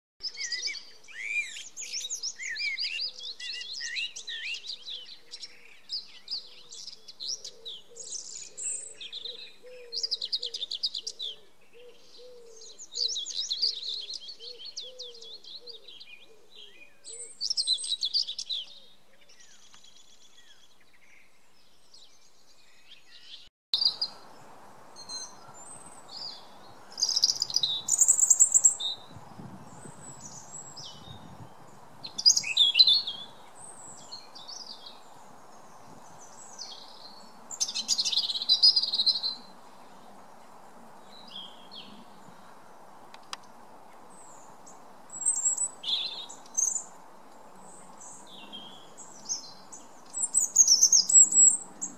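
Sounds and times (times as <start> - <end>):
blackbird singing: 0.2 - 24.3, 25.0 - 40.0, 44.1 - 46.9, 47.6 - 51.9
faint background noise: 0.2 - 51.9
robin singing high thin phrases: 29.8 - 34.7.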